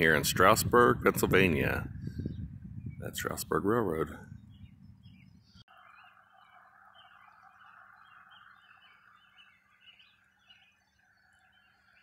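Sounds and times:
faint bird chirps: 4.3s - 12.0s.

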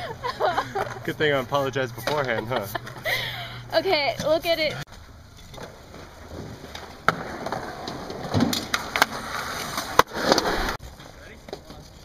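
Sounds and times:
skateboard wheels rolling on concrete: 4.3s - 12.0s.

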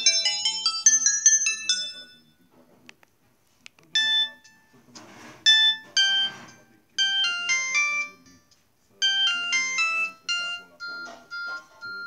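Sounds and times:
phone ringtone electronic beeps: 0.0s - 2.3s, 4.0s - 4.7s, 5.5s - 12.0s.

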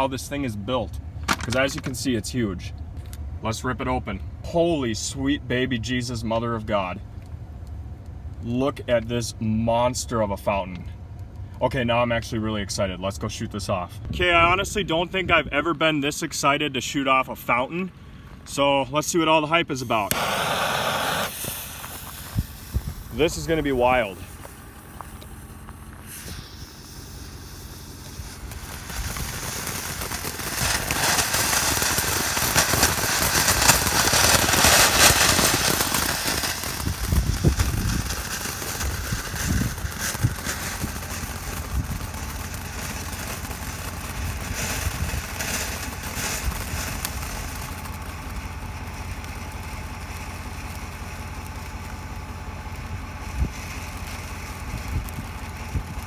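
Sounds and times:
firework crackling and popping: 1.2s - 2.2s, 19.9s - 56.0s
firework fountain hissing: 19.9s - 56.0s.

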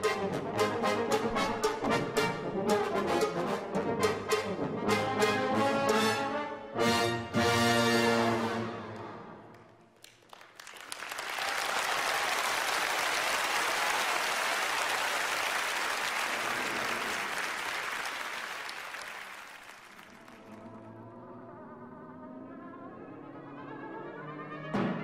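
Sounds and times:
audience applauding: 9.5s - 20.8s.

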